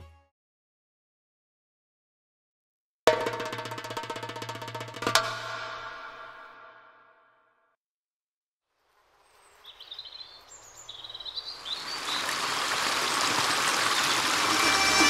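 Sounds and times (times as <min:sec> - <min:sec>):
rushing stream: 0:08.8 - 0:15.0
birds chirping: 0:09.5 - 0:15.0.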